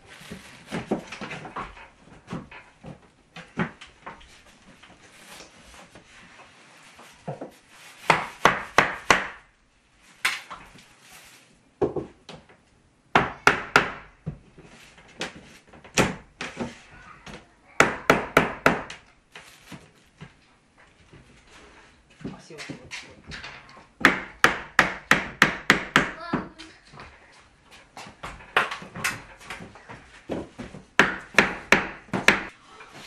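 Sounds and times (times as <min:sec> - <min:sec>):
hammer nailing wooden board: 0:08.1 - 0:09.4, 0:13.1 - 0:14.2, 0:17.8 - 0:19.0, 0:24.0 - 0:26.5, 0:31.0 - 0:32.5.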